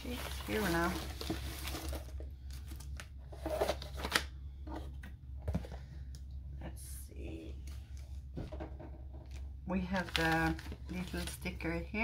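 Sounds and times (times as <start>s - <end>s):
plastic packaging crinkling: 0.0s - 4.2s, 9.3s - 11.7s
steady low hum: 0.0s - 12.0s.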